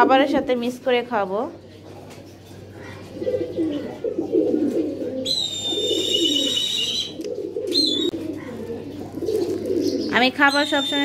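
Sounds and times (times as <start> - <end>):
pigeons cooing: 1.7 - 11.0
high wavering whistle: 5.3 - 7.2.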